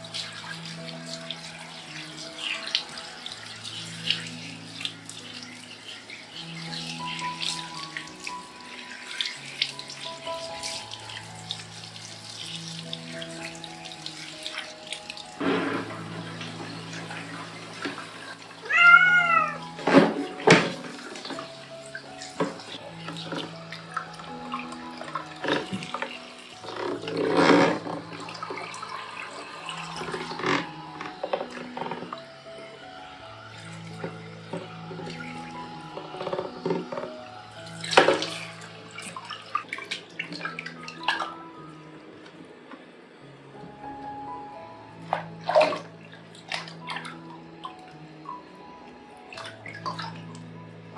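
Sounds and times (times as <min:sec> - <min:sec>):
water running and splashing: 0:00.0 - 0:41.6, 0:44.9 - 0:50.9
background music: 0:00.0 - 0:50.9
cat meowing: 0:18.6 - 0:19.8.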